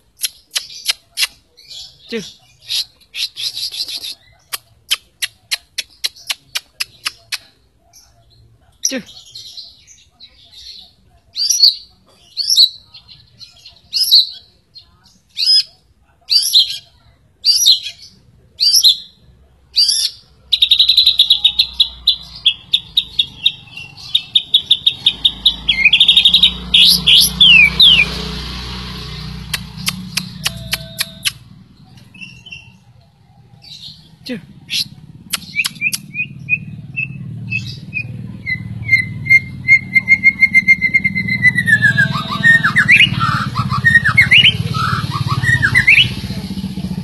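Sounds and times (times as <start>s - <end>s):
bird singing whistled phrases: 34.8s - 46.2s.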